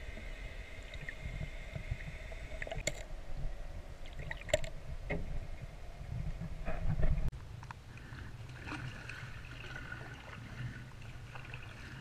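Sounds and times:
faint steady whine: 0:00.0 - 0:12.0
rumble of moving water underwater: 0:00.0 - 0:12.0.

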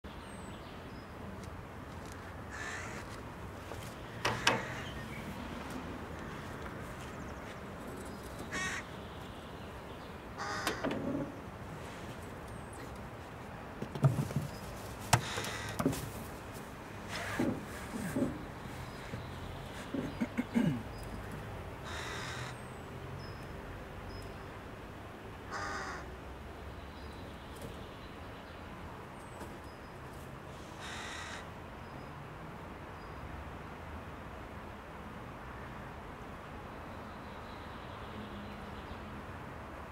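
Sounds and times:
crow cawing: 0:02.5 - 0:03.2, 0:04.3 - 0:04.9, 0:08.5 - 0:08.9, 0:10.4 - 0:10.9, 0:15.2 - 0:15.9, 0:21.8 - 0:22.6, 0:25.5 - 0:26.1, 0:30.8 - 0:31.5.

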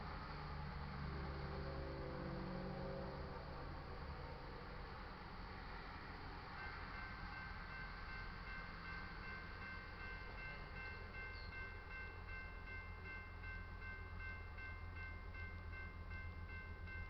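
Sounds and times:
railroad crossing bell ringing: 0:05.7 - 0:17.0.

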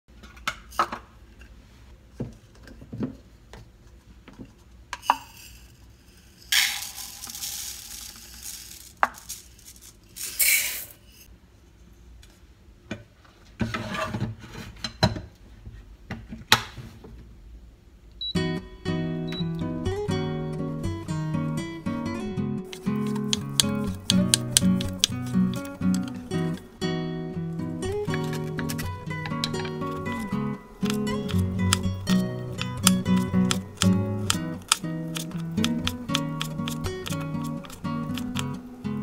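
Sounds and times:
rice grains pouring into pot: 0:06.2 - 0:11.0
guitar music: 0:18.3 - 0:39.0
cup and pot clicking and knocking: 0:22.7 - 0:26.7, 0:28.0 - 0:38.6.

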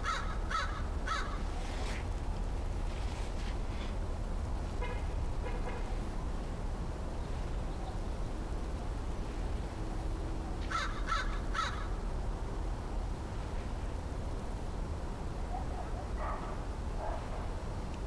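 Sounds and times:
crow cawing: 0:00.0 - 0:01.4, 0:10.7 - 0:12.0.

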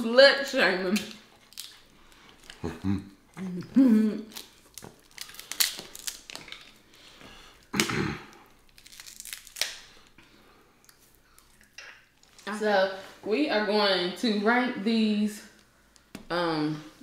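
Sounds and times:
crab shells cracking: 0:00.9 - 0:02.7, 0:04.2 - 0:10.2.

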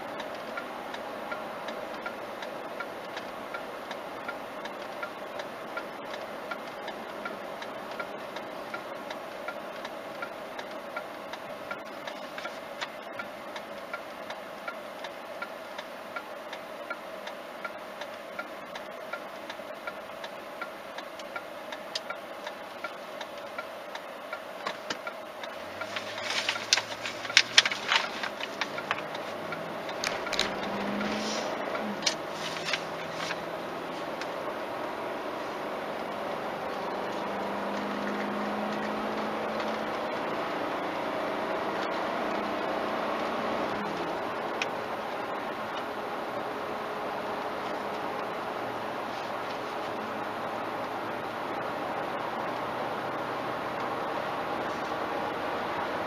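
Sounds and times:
low road noise: 0:00.0 - 0:56.0
turn signal ticking: 0:00.0 - 0:56.0
sharp clicks and rattles: 0:21.9 - 0:33.5
car engine revving: 0:24.5 - 0:56.0.

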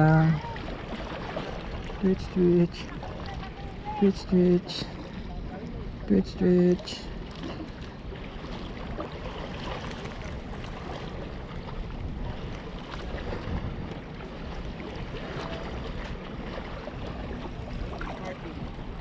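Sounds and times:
water lapping on rocks: 0:00.0 - 0:19.0
wind on microphone: 0:07.1 - 0:19.0.

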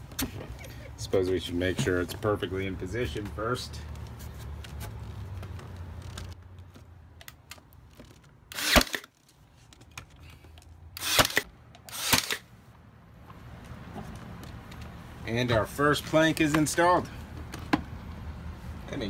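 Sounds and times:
nailer firing bangs: 0:08.5 - 0:09.1.

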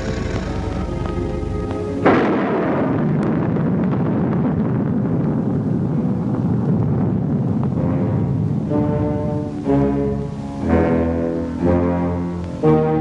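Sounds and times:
music: 0:00.0 - 0:03.2, 0:07.8 - 0:13.0
thunder crack: 0:00.0 - 0:12.4
rain: 0:00.0 - 0:13.0
wind: 0:00.0 - 0:13.0.

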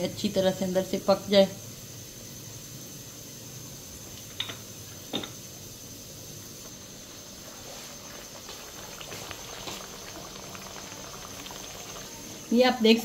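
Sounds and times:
food sizzling in a pan: 0:04.2 - 0:13.0
small crackles: 0:07.5 - 0:12.5.

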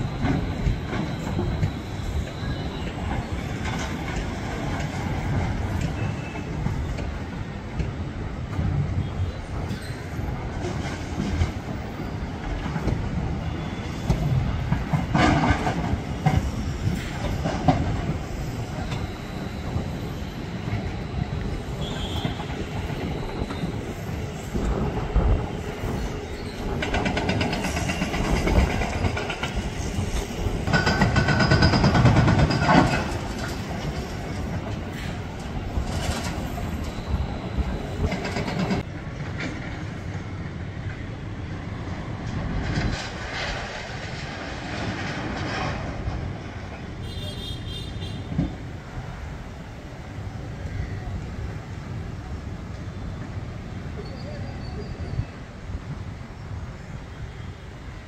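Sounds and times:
metal clanking and squealing: 0:25.8 - 0:38.9.

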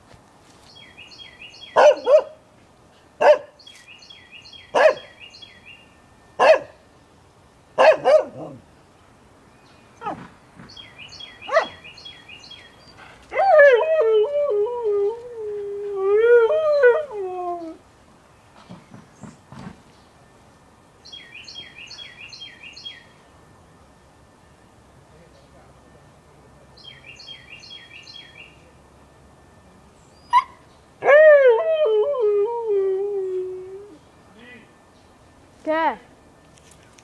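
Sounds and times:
dogs barking: 0:01.8 - 0:02.4, 0:03.2 - 0:03.5, 0:04.7 - 0:05.1, 0:06.4 - 0:06.8, 0:07.8 - 0:08.6, 0:11.5 - 0:11.8
husky howling: 0:31.0 - 0:34.0.

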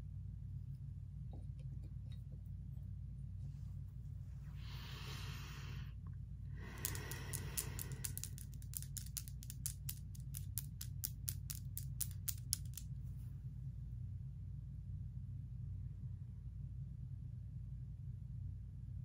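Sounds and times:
steady low hum: 0:00.0 - 0:19.0
false nails clicking together: 0:06.6 - 0:12.9.

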